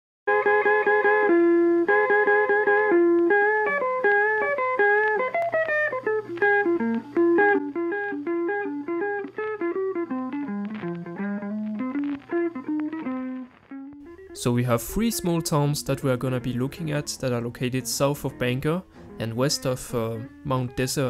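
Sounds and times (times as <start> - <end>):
picked guitar melody: 0.3 - 21.0.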